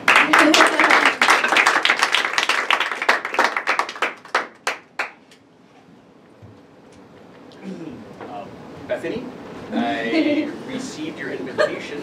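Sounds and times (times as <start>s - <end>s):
audience applauding: 0.0s - 5.2s.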